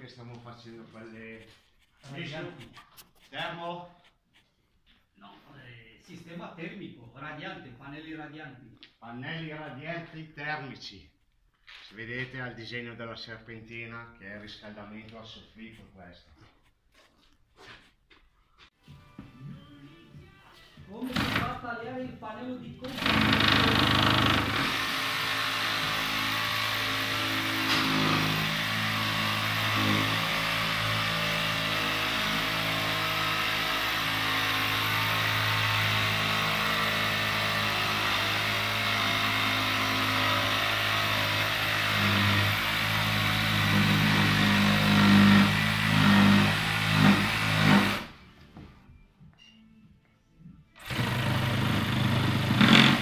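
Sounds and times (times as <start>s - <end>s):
power tool cutting plasterboard: 21.1s - 21.6s, 22.9s - 48.2s, 50.8s - 53.0s.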